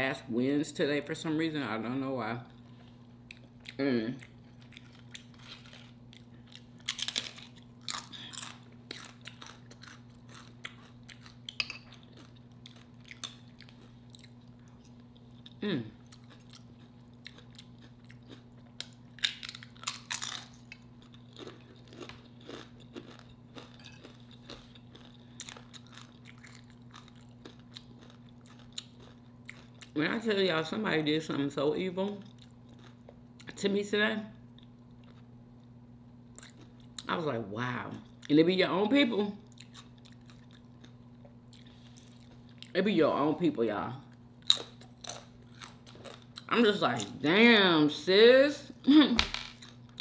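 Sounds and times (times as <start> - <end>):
crunching tortilla chips: 4.2 - 30.0.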